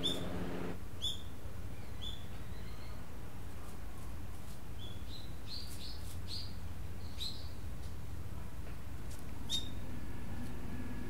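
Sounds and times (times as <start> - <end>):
small bird chirping: 0.0 - 3.0, 4.8 - 7.6, 9.4 - 9.8.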